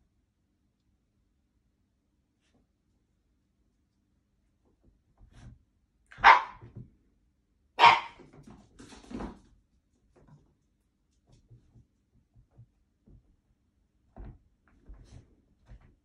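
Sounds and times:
dog barking: 6.1 - 6.7, 7.8 - 8.2.

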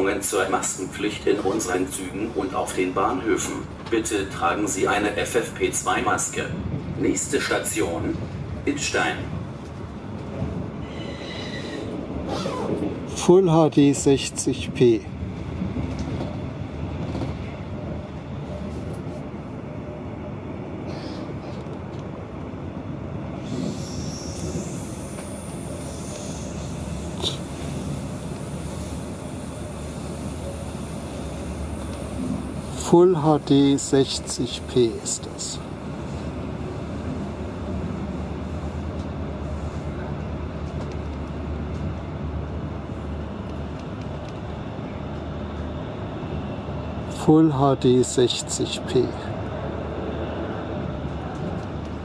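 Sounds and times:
train interior rumble: 0.0 - 52.0.

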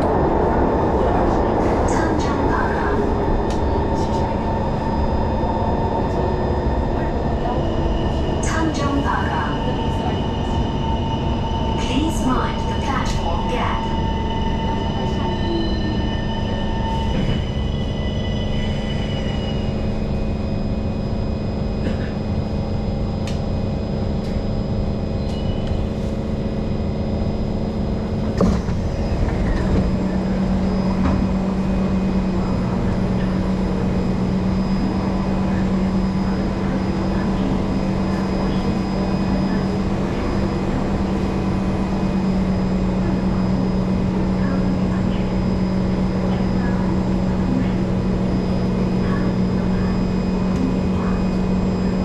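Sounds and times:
low hum at platform: 0.0 - 52.0
subway train rumble: 0.0 - 52.0
train clunk: 28.2 - 30.1.

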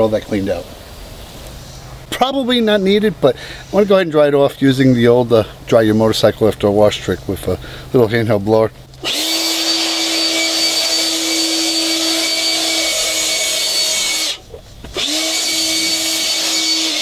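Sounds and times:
leaf blower running: 9.0 - 17.0.

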